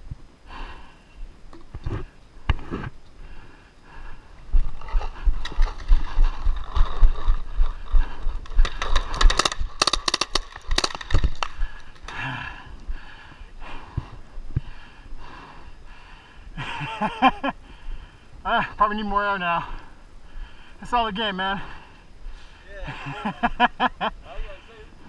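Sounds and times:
gear bumping microphone: 0:01.5 - 0:03.0, 0:04.4 - 0:12.2
paintball marker firing rapidly: 0:08.6 - 0:11.4.

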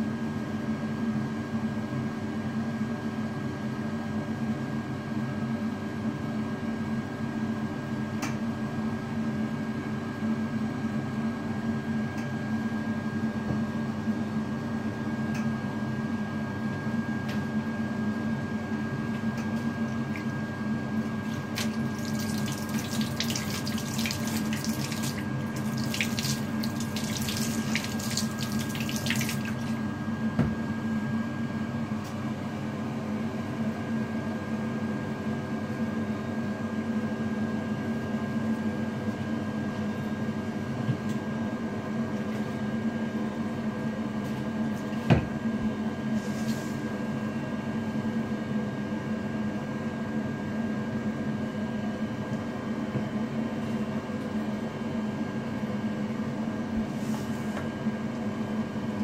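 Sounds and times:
steady hum: 0:19.6 - 0:30.6
shower water running: 0:21.3 - 0:29.8.

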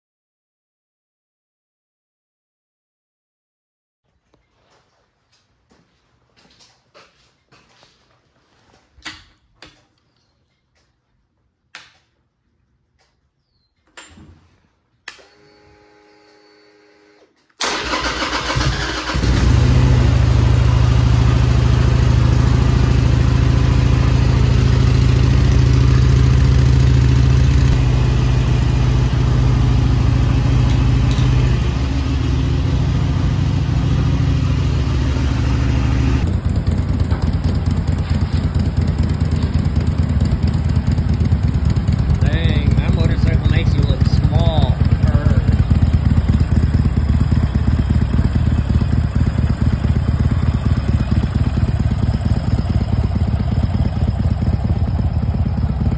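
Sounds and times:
ignition whine: 0:15.0 - 0:41.2, 0:41.8 - 0:49.8
motorcycle engine starting and running: 0:15.1 - 0:55.9.

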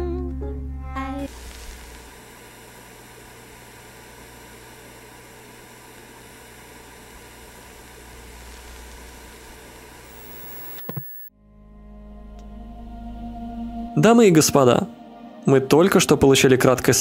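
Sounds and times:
faint hum: 0:00.0 - 0:11.3
steady recording hiss: 0:01.0 - 0:03.5.

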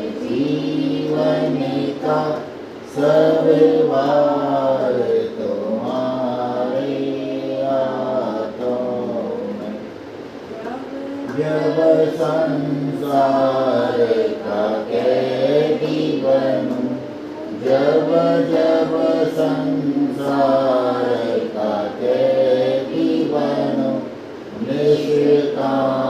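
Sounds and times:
voices singing devotional song: 0:00.0 - 0:26.0.

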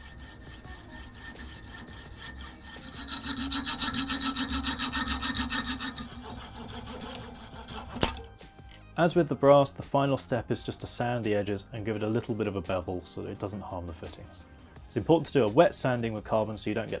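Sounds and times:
saw cutting a tube: 0:00.0 - 0:08.4.

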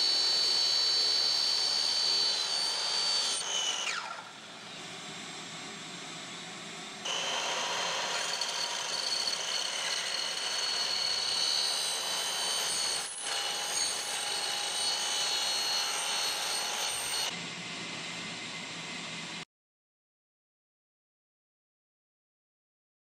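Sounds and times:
saw running free: 0:00.0 - 0:05.4, 0:07.0 - 0:17.3
miter saw cutting aluminum: 0:00.0 - 0:17.4.

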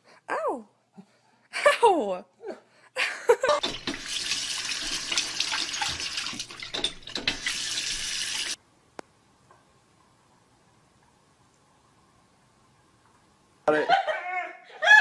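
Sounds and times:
water running from faucet: 0:03.6 - 0:08.6.

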